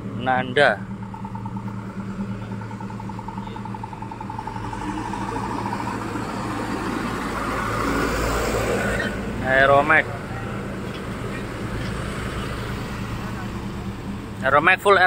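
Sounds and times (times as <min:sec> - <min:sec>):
steady low hum: 0:00.0 - 0:07.7
steady high tone: 0:00.0 - 0:08.1
diesel trucks rolling past: 0:00.0 - 0:15.0.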